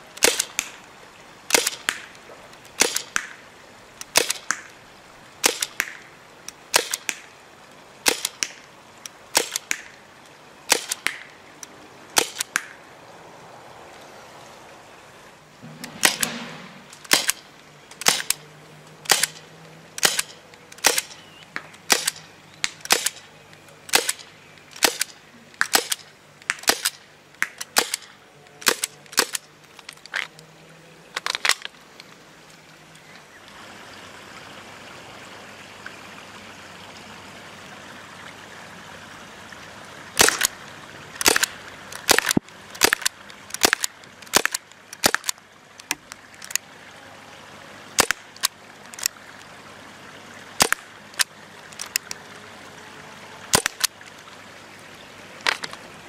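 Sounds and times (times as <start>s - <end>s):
faint steady hiss: 0.0s - 56.0s
airsoft pistol shots: 1.5s - 2.0s, 2.8s - 3.3s, 6.7s - 7.2s, 15.9s - 17.4s, 18.0s - 18.4s, 19.1s - 19.4s, 20.0s - 21.1s.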